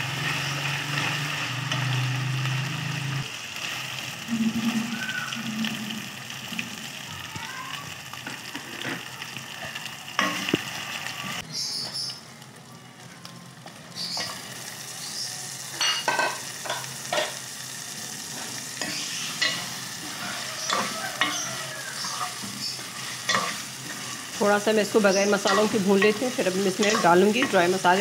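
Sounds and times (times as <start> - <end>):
steel spoon scraping a pan: 0.0 - 4.9, 18.3 - 28.0
onions and chicken sizzling in oil: 0.0 - 28.0.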